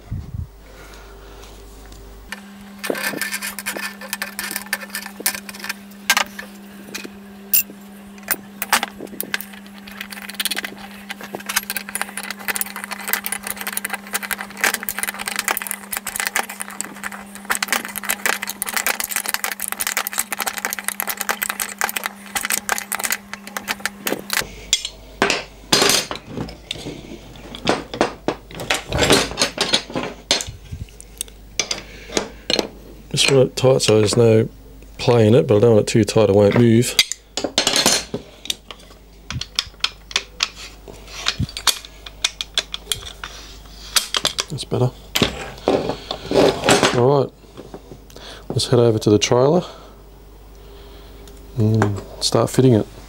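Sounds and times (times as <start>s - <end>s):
steady low hum: 0.0s - 53.0s
spanners clinking on bolts: 2.8s - 30.6s.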